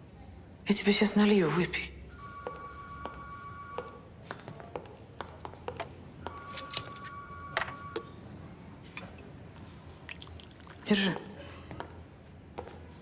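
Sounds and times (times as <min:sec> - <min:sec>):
soft held tone: 0:02.1 - 0:04.1, 0:06.2 - 0:08.2
liquid pouring into glass: 0:09.5 - 0:10.9.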